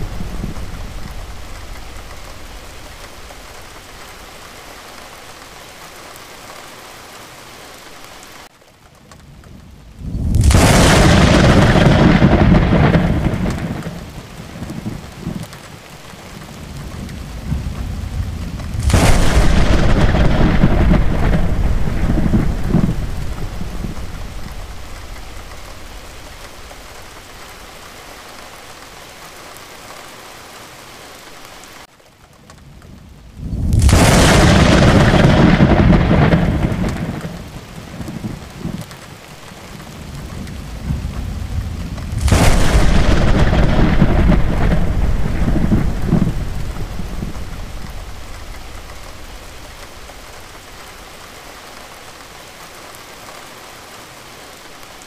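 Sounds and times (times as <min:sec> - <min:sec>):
thunderclaps rumbling: 0:00.0 - 0:04.8, 0:09.2 - 0:28.2, 0:32.6 - 0:52.0
steady rain: 0:00.0 - 0:55.0.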